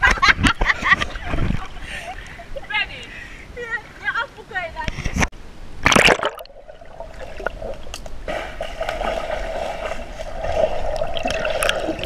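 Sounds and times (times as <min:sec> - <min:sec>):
underwater sloshing and bubbling: 0:04.9 - 0:12.0
pool water splashing: 0:05.8 - 0:12.0.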